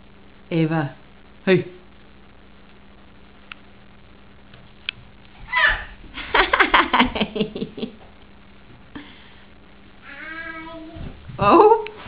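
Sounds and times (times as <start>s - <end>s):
toddler giggling: 5.5s - 6.0s.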